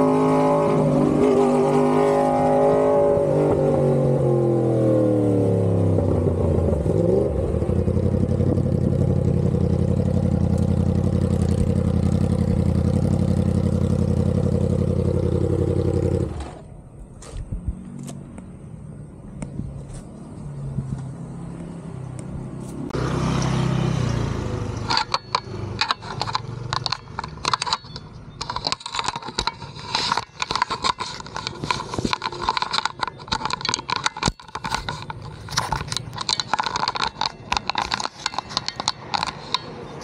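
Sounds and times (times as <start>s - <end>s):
motorcycle engine running: 5.3s - 16.7s, 22.9s - 39.9s
crackling and scraping noise: 6.9s - 18.4s, 24.7s - 40.0s.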